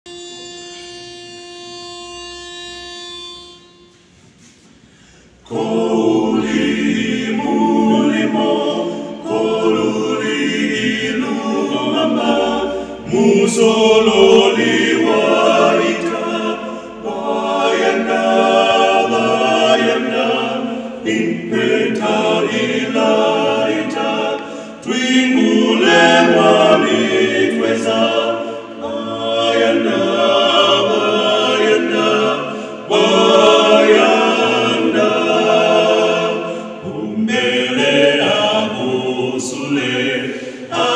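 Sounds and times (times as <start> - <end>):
pitch pipe note: 0.1 - 4.6
male quartet singing a cappella: 5.4 - 40.9.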